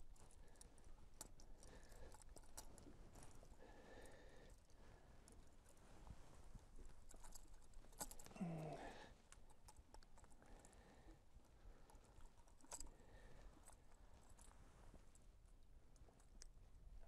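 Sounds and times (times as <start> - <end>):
man grunting: 8.3 - 9.0.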